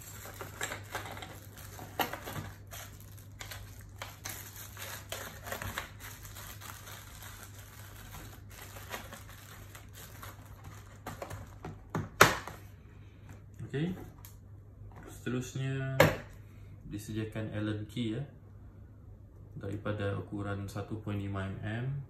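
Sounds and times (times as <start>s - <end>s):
plastic bags crinkling: 0.0s - 11.8s.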